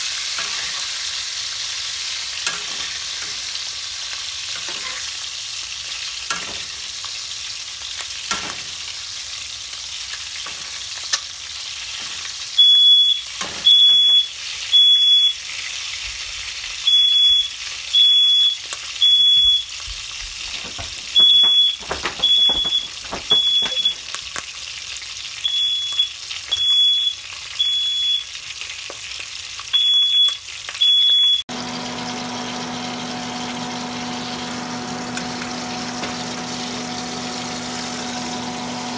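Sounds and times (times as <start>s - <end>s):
meat sizzling in oil: 0.0s - 38.9s
smoke alarm beeping: 12.6s - 15.4s, 16.8s - 24.2s, 25.4s - 28.3s, 29.7s - 31.4s.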